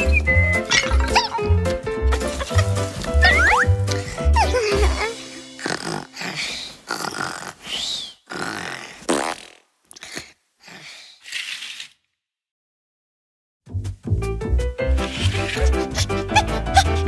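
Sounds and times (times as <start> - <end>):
cartoon squeaky puffs: 2.4 - 6.6, 14.9 - 17.0.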